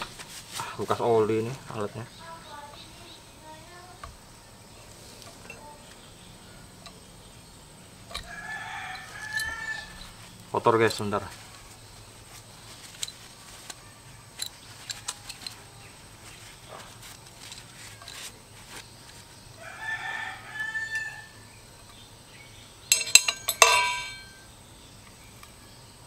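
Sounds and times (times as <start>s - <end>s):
chicken crowing: 8.2s - 10.2s, 19.6s - 21.5s
tools knocking: 22.9s - 24.4s.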